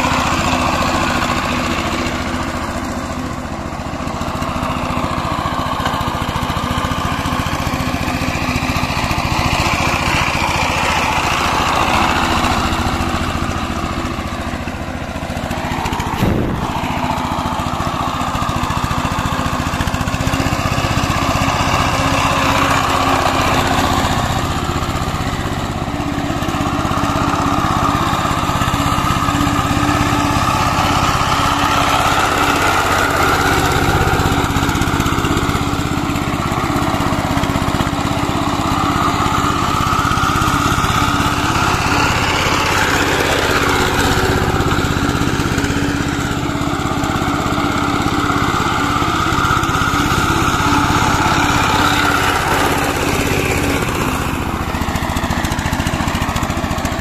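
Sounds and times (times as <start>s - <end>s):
diesel engine running under load: 0.0s - 57.0s
rotary blades churning mud: 26.2s - 57.0s.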